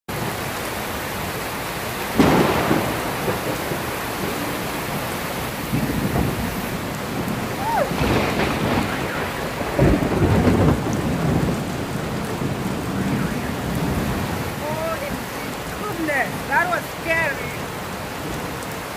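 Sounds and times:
heavy rain: 0:00.1 - 0:18.9
loud thunder: 0:02.1 - 0:16.7.

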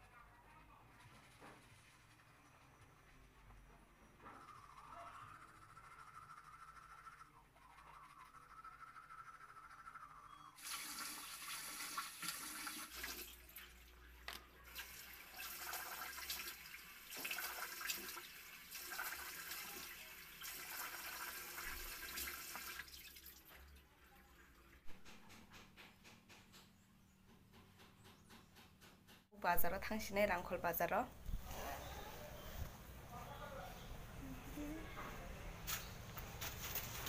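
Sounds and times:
toothbrush scrubbing: 0:04.4 - 0:10.5
tap water running into sink: 0:10.6 - 0:13.9, 0:14.7 - 0:23.8.

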